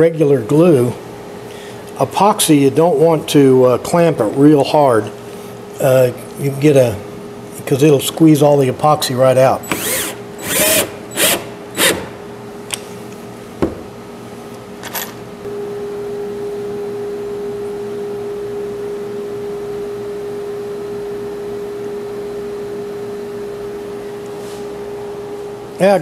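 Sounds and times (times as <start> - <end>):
steady hum: 0.0 - 26.0
cordless drill driving screw: 9.6 - 12.2.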